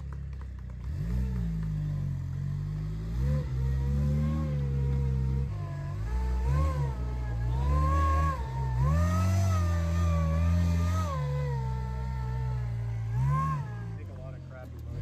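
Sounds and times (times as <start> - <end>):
buggy engine revving: 0.0 - 15.0.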